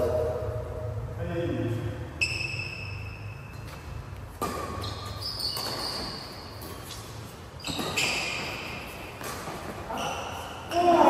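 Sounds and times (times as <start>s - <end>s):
low hum of hall: 0.0s - 11.0s
sports shoes squeaking on court: 2.2s - 10.7s.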